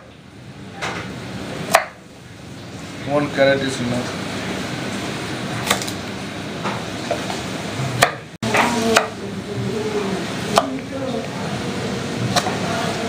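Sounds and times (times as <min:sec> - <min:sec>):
knife chopping on wooden board: 0:01.7 - 0:02.0, 0:08.0 - 0:08.2.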